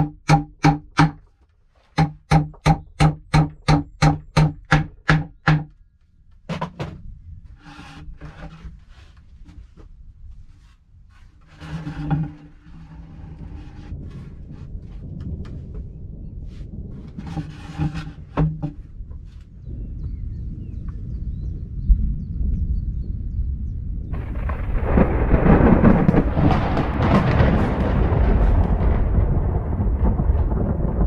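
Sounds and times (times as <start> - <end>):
hammer striking wooden planks: 0.0 - 1.3, 1.9 - 5.8, 17.2 - 18.8
boards knocking and rustling: 0.0 - 15.9, 16.5 - 19.5, 25.8 - 28.8
loud thump: 25.8 - 29.2.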